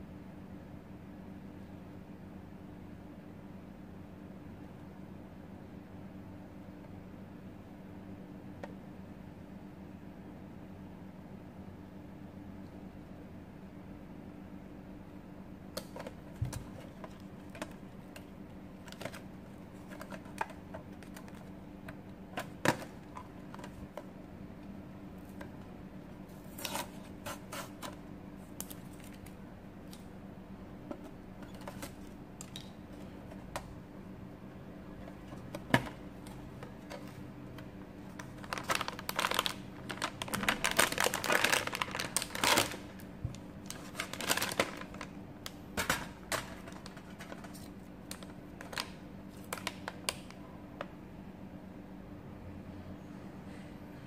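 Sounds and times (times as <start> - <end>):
foil wrapper crinkling: 38.0 - 45.2, 45.8 - 50.4.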